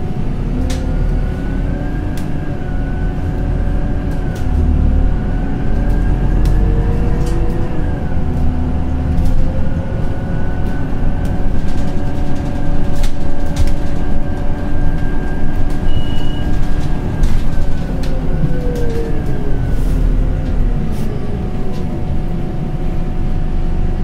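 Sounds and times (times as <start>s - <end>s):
bus engine whine: 0.0s - 24.0s
road rumble: 0.0s - 24.0s
short high beep: 15.9s - 16.4s.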